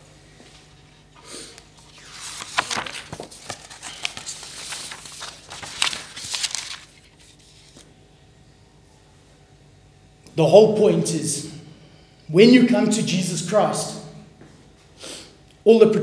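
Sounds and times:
paper rustling and crinkling: 0.5 - 7.9.

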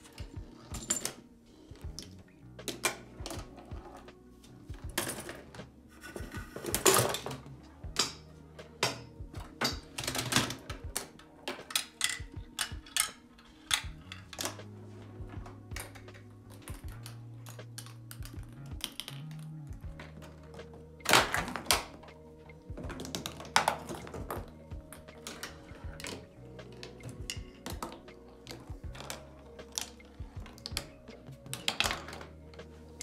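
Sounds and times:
clicks knocks and rattles of parts: 0.0 - 4.1, 4.8 - 14.7, 15.3 - 33.0
balls rolling and dropping: 0.0 - 33.0.

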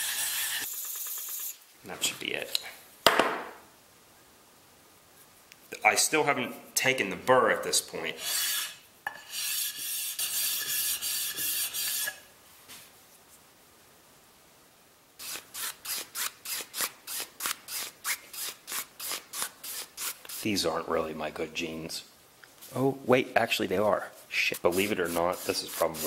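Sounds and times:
chisel scraping on sandpaper: 0.0 - 1.5, 8.2 - 12.2, 24.3 - 26.0.

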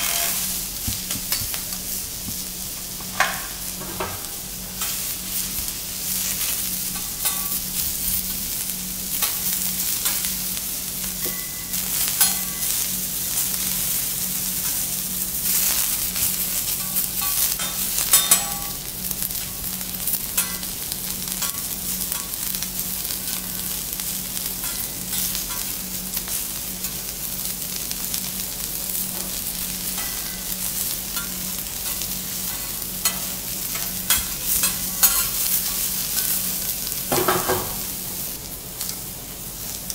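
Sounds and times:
metal spatulas scraping griddle: 0.0 - 0.6, 31.2 - 36.4
steady low hum: 0.0 - 37.1
vegetables sizzling on griddle: 0.0 - 39.9.

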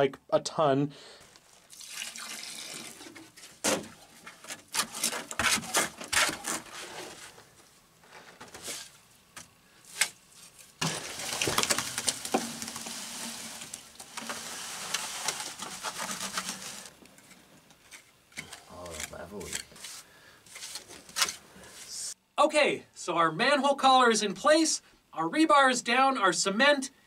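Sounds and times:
wet cement sloshing: 1.5 - 3.6, 10.8 - 16.9
shovel scraping in plastic bucket: 2.8 - 7.4, 9.9 - 21.8.

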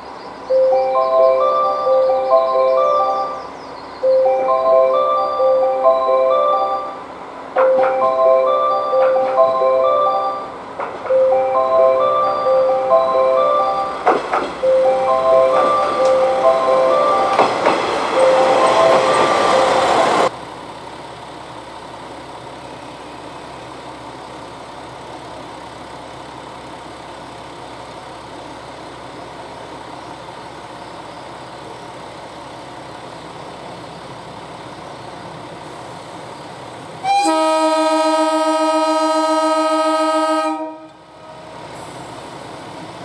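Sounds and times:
diesel railcar idling hum: 0.0 - 43.0
diesel railcar rumbling: 0.0 - 43.0
station chime melody: 0.5 - 20.3.

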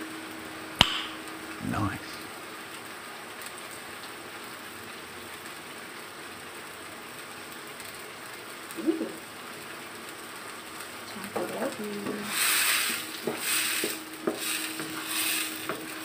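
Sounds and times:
food sizzling in a wok: 0.0 - 16.0.

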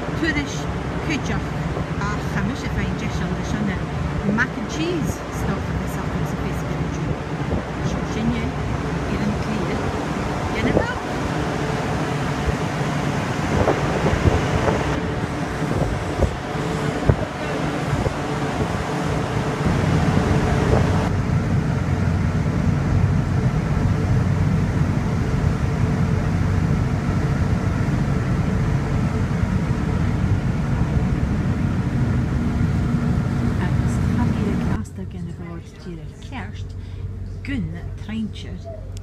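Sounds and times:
ship engines droning: 0.0 - 39.0
wind: 0.0 - 39.0
sea noise: 5.2 - 34.8.

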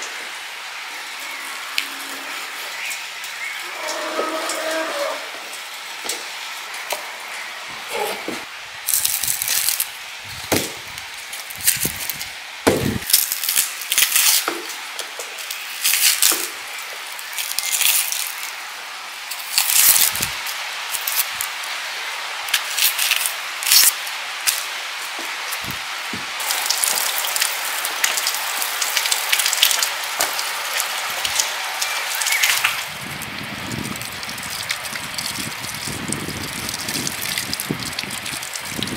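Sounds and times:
onion skins crackling: 8.8 - 21.8, 22.4 - 38.9.

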